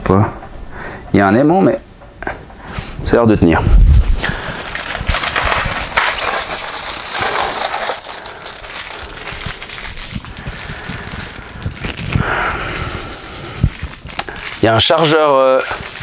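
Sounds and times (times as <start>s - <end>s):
packaging rustling and crinkling: 3.9s - 16.0s.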